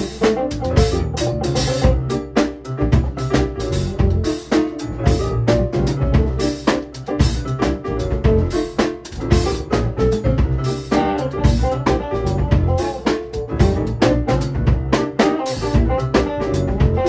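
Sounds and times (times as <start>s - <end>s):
bass guitar: 0.0s - 17.0s
drum kit beat: 0.0s - 17.0s
funk band playing: 0.0s - 17.0s
piano chords: 0.0s - 17.0s
electric guitar: 10.9s - 17.0s.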